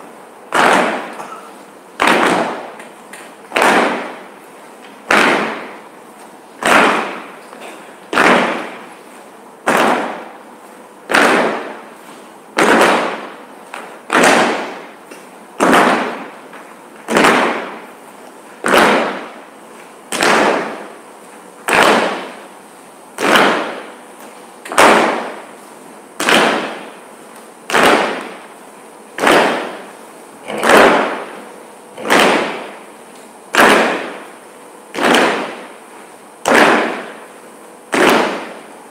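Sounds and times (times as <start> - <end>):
stamping on wooden stage: 6.6 - 8.8, 9.6 - 10.3, 12.6 - 17.8.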